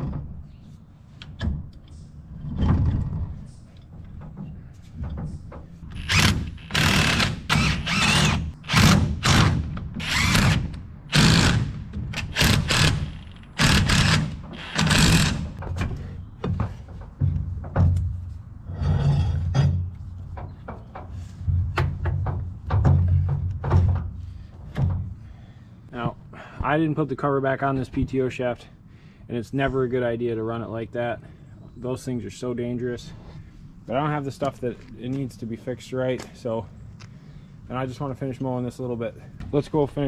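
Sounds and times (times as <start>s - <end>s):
metal knocks and clanks: 0.0s - 0.5s, 11.2s - 25.1s.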